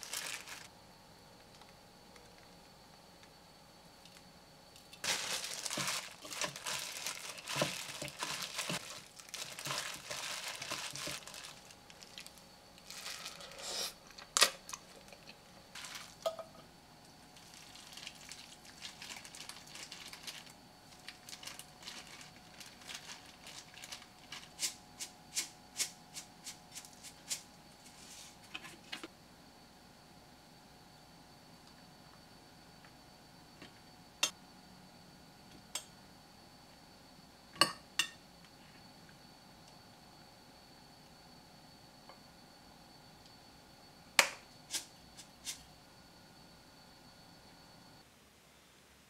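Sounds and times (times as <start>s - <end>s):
wet crinkling of noodles: 0.0s - 0.7s, 5.0s - 16.3s, 17.4s - 24.7s.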